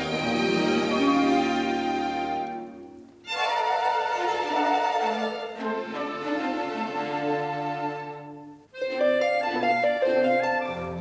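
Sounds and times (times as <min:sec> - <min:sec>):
orchestral strings holding notes: 0:00.0 - 0:11.0.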